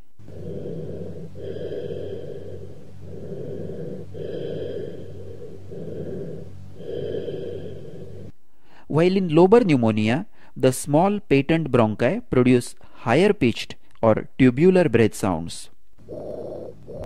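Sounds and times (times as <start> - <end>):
steady low hum: 0.0 - 11.2
breath sounds through stethoscope: 0.3 - 8.9.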